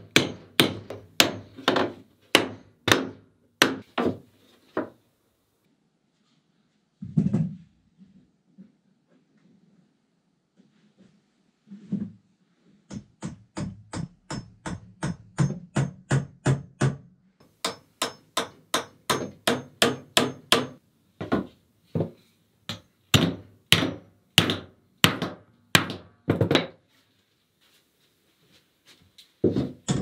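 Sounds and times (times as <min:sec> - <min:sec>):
hammer driving nails into wood: 0:00.0 - 0:04.2, 0:12.9 - 0:22.1, 0:22.7 - 0:26.8.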